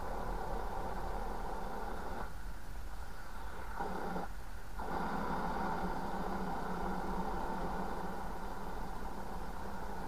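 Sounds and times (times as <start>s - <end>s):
radio static: 3.4s - 9.0s.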